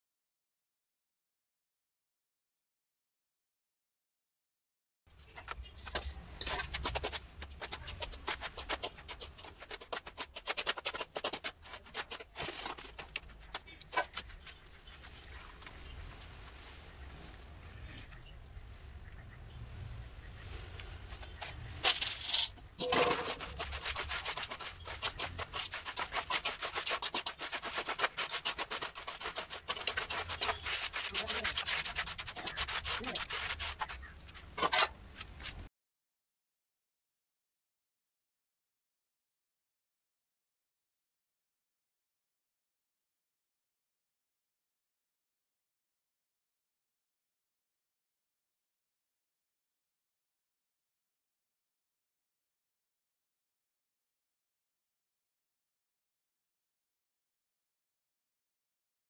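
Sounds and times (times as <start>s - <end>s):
trowel scraping metal pan: 5.8s - 14.4s, 21.2s - 35.6s.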